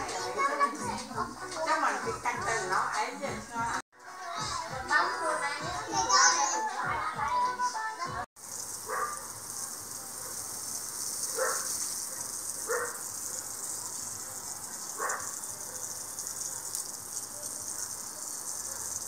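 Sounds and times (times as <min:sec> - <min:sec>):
hose spraying water on grass: 0:08.4 - 0:19.0.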